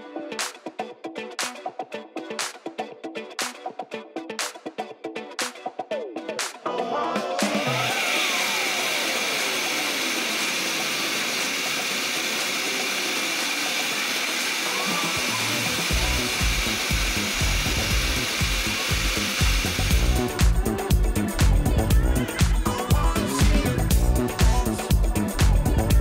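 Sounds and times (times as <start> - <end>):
dance music: 5.4 - 26.0.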